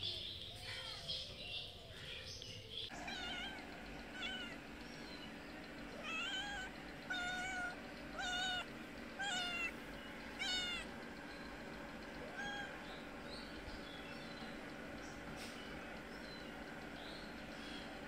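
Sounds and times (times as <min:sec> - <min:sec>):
cat meowing: 0:02.9 - 0:03.6, 0:04.2 - 0:04.6, 0:06.0 - 0:09.7, 0:10.4 - 0:10.9.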